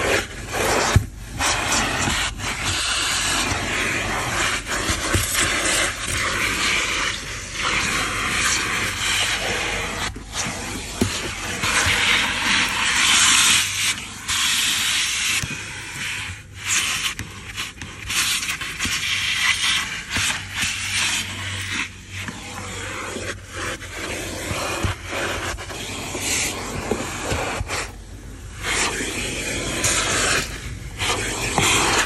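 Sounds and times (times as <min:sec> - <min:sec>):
grit clicking up hose: 0:00.0 - 0:32.0
nozzle scraping carpet: 0:00.0 - 0:32.0
vacuum suction hiss: 0:00.0 - 0:32.0.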